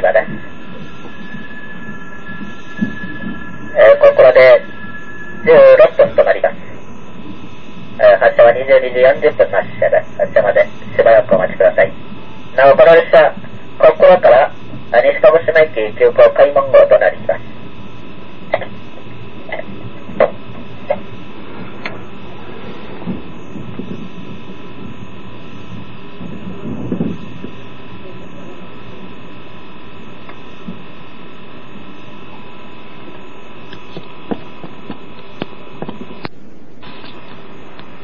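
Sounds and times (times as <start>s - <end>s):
low rumble: 0.0s - 8.0s
electrical hum in train car: 0.0s - 38.0s.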